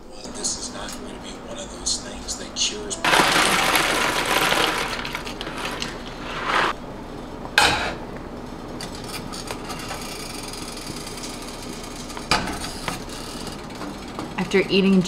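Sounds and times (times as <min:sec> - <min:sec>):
dry pasta poured into a saucepan: 0:03.1 - 0:05.9.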